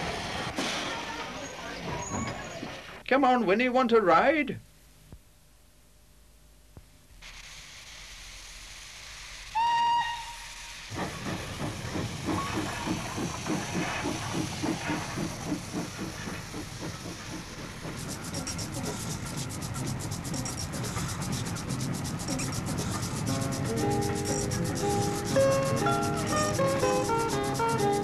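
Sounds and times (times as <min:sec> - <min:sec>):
steam hissing: 0:07.1 - 0:28.0
train whistle blast: 0:09.5 - 0:10.9
steam engine chuffing: 0:10.3 - 0:28.0.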